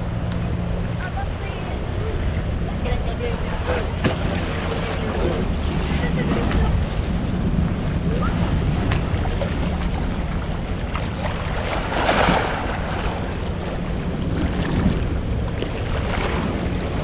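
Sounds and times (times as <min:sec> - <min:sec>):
wind buffeting microphone: 0:00.0 - 0:17.0
water washing at shore: 0:03.7 - 0:17.0.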